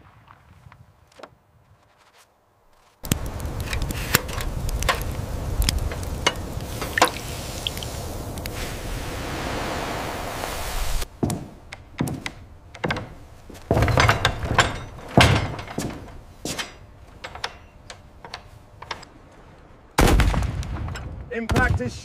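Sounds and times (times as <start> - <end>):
cannon shot: 20.0 - 21.8.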